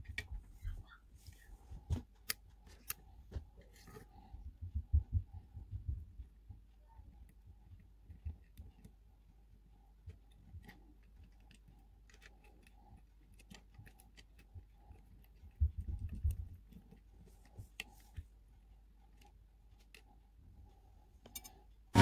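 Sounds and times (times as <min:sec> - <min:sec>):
fingers tapping small plastic pieces: 0:10.1 - 0:17.1.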